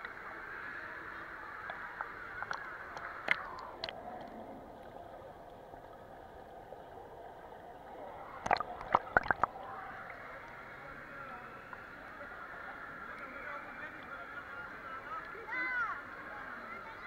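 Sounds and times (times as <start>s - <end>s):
muffled underwater wash: 0.0s - 17.0s
sharp clicks and splashes: 1.6s - 4.4s, 8.4s - 9.6s.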